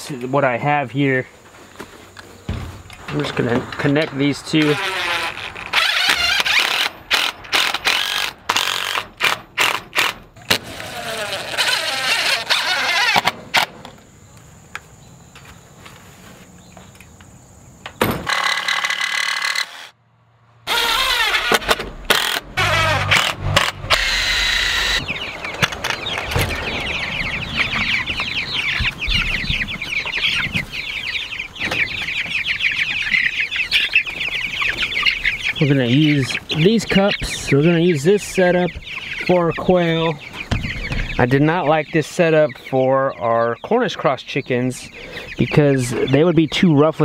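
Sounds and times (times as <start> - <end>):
chicks peeping and clucking: 0.0 - 18.8, 20.7 - 47.0
cordless drill running: 24.0 - 25.0.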